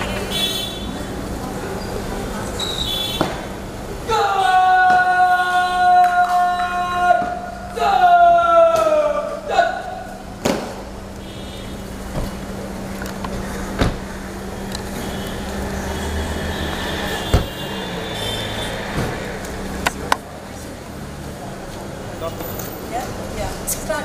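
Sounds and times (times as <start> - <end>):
faint voices: 0.0 - 11.2.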